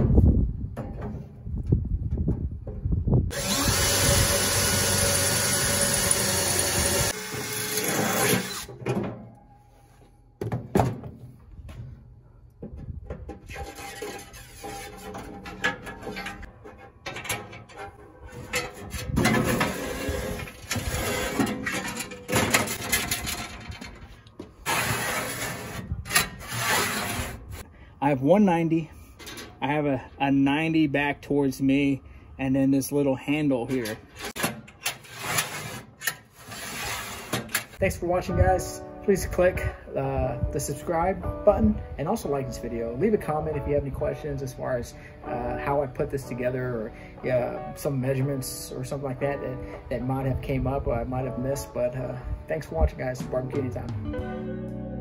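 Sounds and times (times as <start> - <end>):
cordless drill boring into metal: 3.3 - 8.7
metal clinks and scrapes: 13.4 - 27.6.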